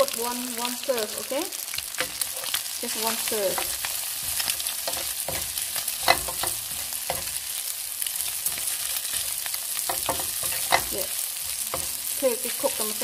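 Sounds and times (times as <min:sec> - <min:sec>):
noodles sizzling in a frying pan: 0:00.0 - 0:13.0
spatula knocking and scraping pan: 0:01.9 - 0:07.5, 0:08.3 - 0:12.1.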